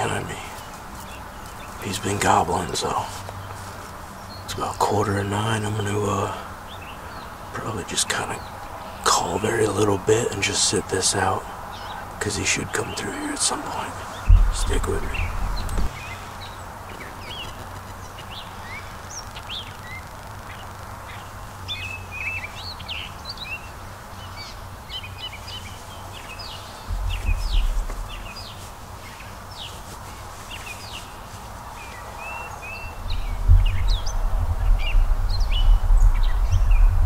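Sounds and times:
songbirds chirping and singing: 0:00.0 - 0:37.0
low rumble: 0:14.2 - 0:16.1, 0:26.9 - 0:28.6.

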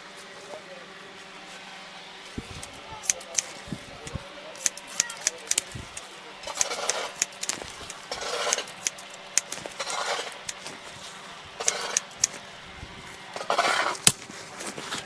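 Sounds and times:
scissors snipping hair: 0:02.4 - 0:10.8, 0:11.6 - 0:12.4.

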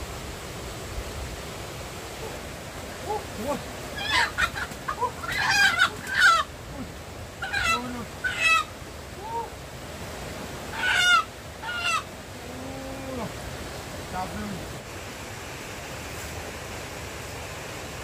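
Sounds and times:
chicken squawking in distress: 0:04.0 - 0:06.5, 0:07.4 - 0:08.7, 0:10.7 - 0:12.1.

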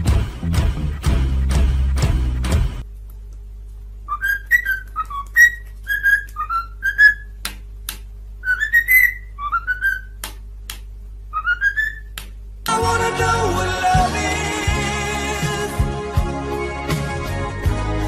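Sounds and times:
cockatiel whistling a tune: 0:04.1 - 0:07.3, 0:08.4 - 0:10.2, 0:11.3 - 0:12.1.

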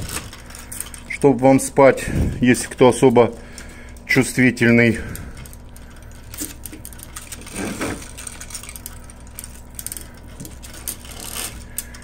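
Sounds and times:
steady low hum: 0:00.0 - 0:12.0
bead chain clicking and rattling: 0:05.4 - 0:11.9.

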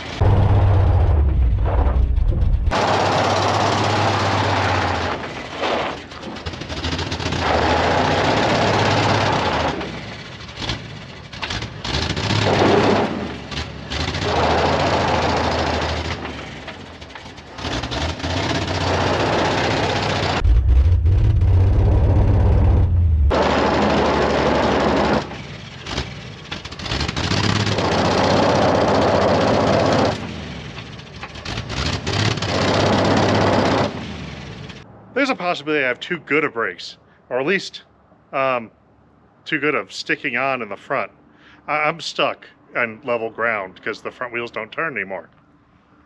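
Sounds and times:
tires spinning and spraying gravel: 0:00.0 - 0:34.8
truck engine revving: 0:00.0 - 0:34.8.

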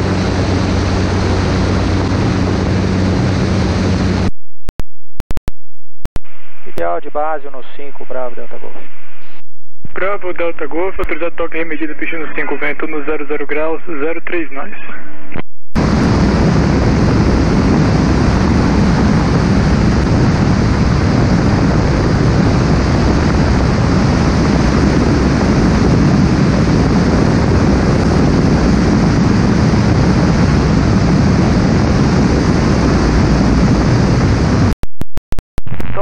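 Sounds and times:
aircraft engine drone: 0:00.0 - 0:04.3, 0:15.8 - 0:34.7
wind rush: 0:00.0 - 0:04.3, 0:15.8 - 0:34.7.

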